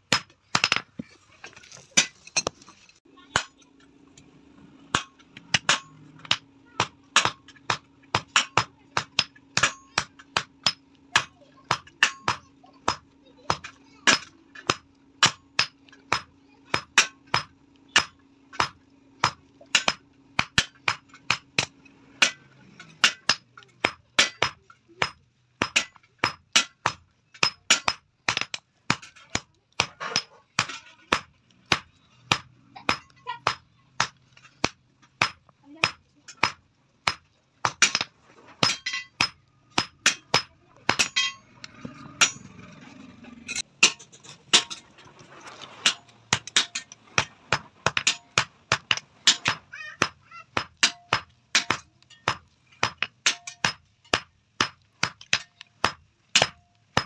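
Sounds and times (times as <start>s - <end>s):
hammer striking iron on anvil: 4.9s - 42.7s, 43.4s - 44.9s, 45.8s - 57.0s.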